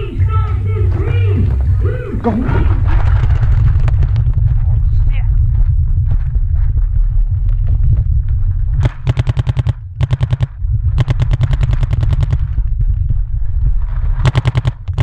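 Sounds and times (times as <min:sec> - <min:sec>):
paintball markers firing bursts: 0:08.8 - 0:12.5, 0:14.2 - 0:15.0.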